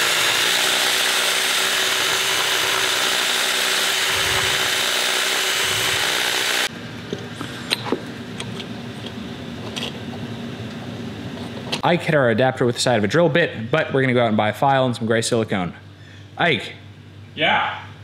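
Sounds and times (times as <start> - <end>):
cordless drill grinding: 0.0 - 6.7.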